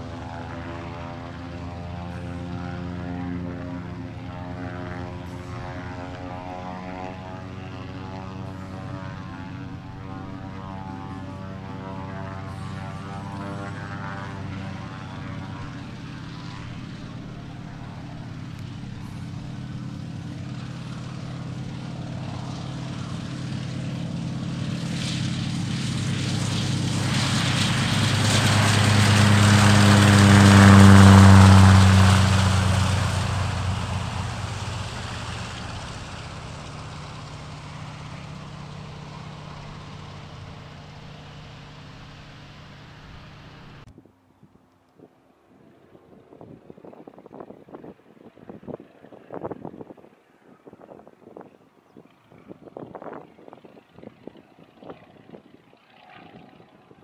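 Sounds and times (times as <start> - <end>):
propeller plane engine passing: 0.0 - 43.9, 45.3 - 57.0.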